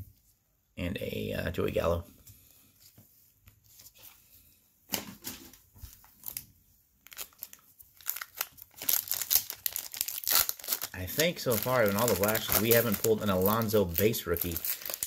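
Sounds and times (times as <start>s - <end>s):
foil wrapper crinkling and tearing: 6.0s - 15.0s.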